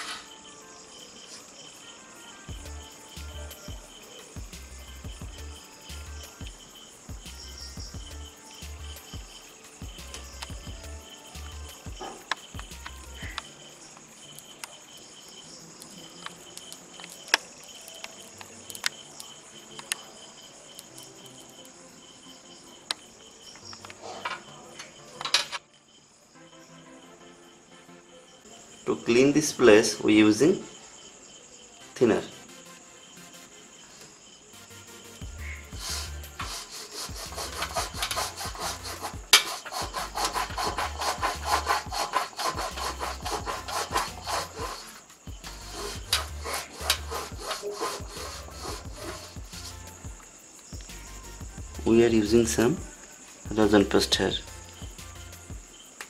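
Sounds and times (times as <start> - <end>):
crickets chirring: 0.0 - 56.0
cloth scrubbing strokes: 35.8 - 49.9.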